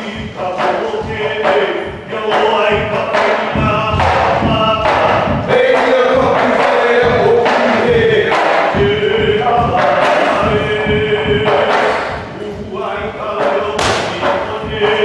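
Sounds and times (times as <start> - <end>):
drum beats: 0.0 - 15.0
group chanting: 0.6 - 12.1, 12.8 - 15.0.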